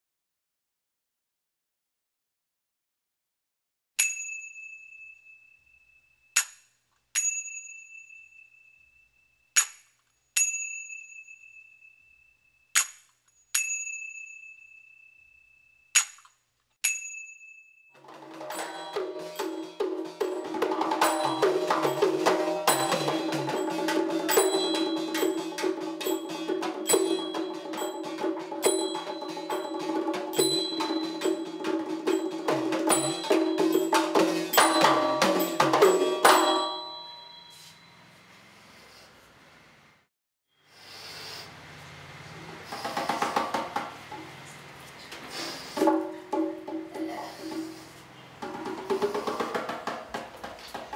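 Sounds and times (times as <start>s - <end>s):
percussion music with drums: 18.0s - 37.6s, 42.6s - 44.4s, 45.7s - 50.9s
ringing metallic strikes: 18.0s - 38.0s.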